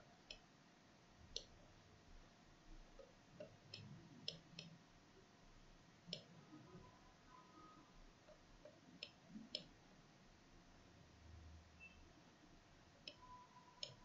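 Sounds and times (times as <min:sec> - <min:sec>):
computer mouse clicks: 0:01.4 - 0:01.6, 0:06.1 - 0:06.3, 0:08.3 - 0:09.7, 0:13.0 - 0:14.0.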